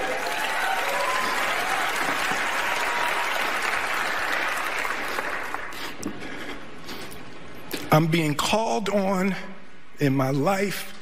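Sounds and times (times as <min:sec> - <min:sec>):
large audience applauding: 0:00.0 - 0:06.0.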